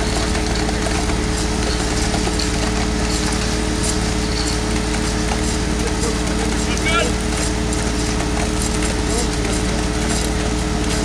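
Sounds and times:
small engine running steadily: 0.0s - 11.0s.

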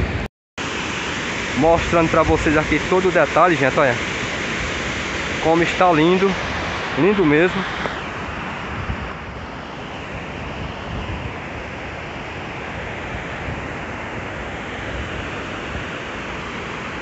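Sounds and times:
wind rumbling on microphone: 0.0s - 0.3s, 4.2s - 17.0s.

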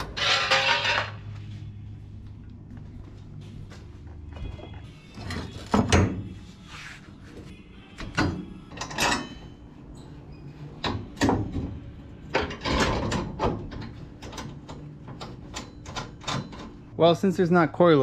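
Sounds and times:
metal clanks and knocks: 5.2s - 6.3s, 8.0s - 9.6s, 10.8s - 16.9s.

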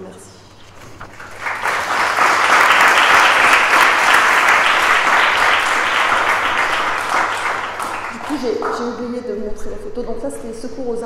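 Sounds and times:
audience applauding: 0.8s - 9.0s.

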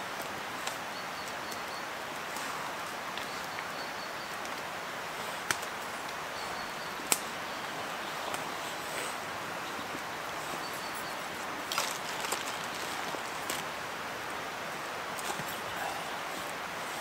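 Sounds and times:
campfire crackling: 0.0s - 17.0s.

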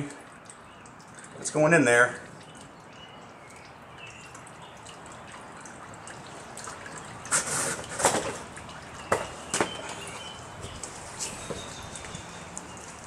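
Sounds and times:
oil trickling into drain pan: 0.0s - 13.0s.

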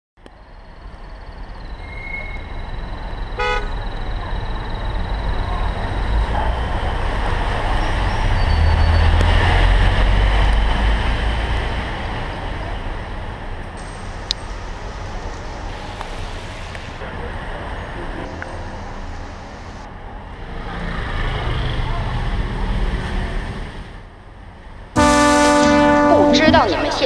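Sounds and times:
city street traffic: 0.2s - 27.0s
car horn toot: 3.4s - 3.8s, 25.0s - 27.0s.

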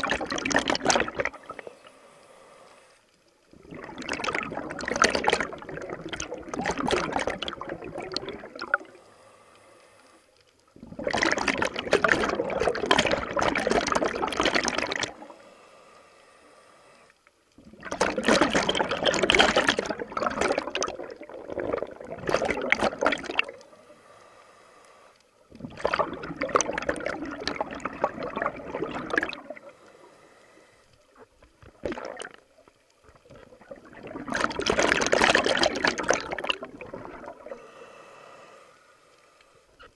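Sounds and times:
bubbles gurgling underwater: 0.0s - 1.8s, 3.5s - 9.0s, 10.8s - 15.3s, 17.6s - 23.6s, 25.5s - 29.7s, 31.2s - 37.6s.

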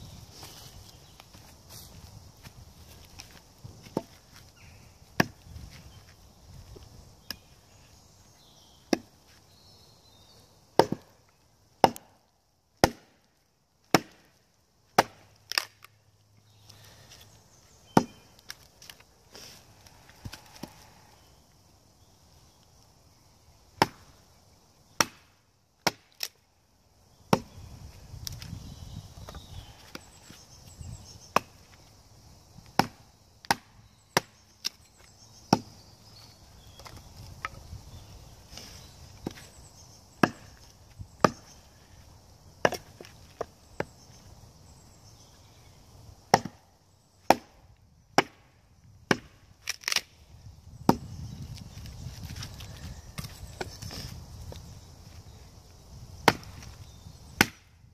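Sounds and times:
wood splitting knocks and cracks: 10.8s - 11.2s, 11.8s - 12.1s, 12.8s - 15.9s, 25.0s - 26.4s, 46.3s - 46.6s, 48.2s - 48.5s, 49.1s - 50.1s, 50.8s - 54.1s, 56.2s - 56.8s.

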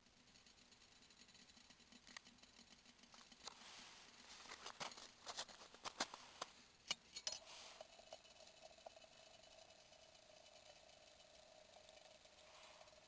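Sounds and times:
small ticks and pops: 0.0s - 3.6s
kettle hissing: 0.0s - 13.0s.

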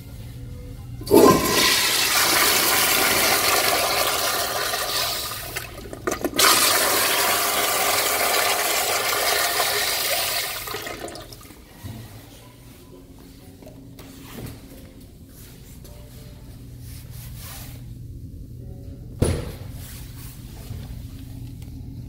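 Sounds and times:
toilet flushing: 1.0s - 11.8s.

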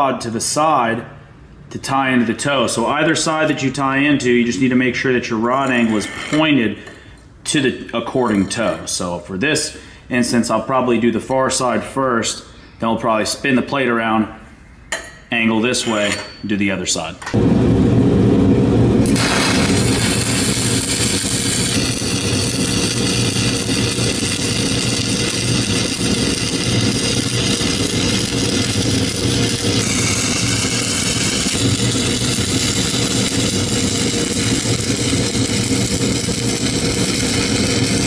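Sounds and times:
low hum: 17.4s - 38.0s
welding arc crackling hiss: 19.0s - 38.0s.

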